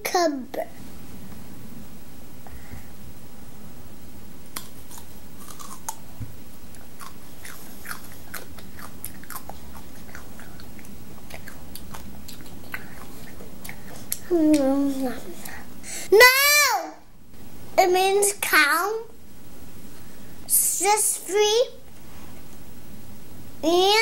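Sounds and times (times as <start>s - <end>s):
child chewing raw cucumber: 4.5s - 15.7s.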